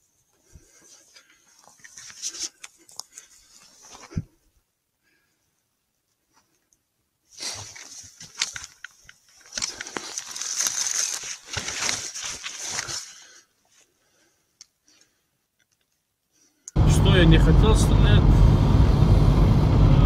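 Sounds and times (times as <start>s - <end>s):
rifle handling rustling and scraping: 0.0s - 4.6s, 6.1s - 16.1s.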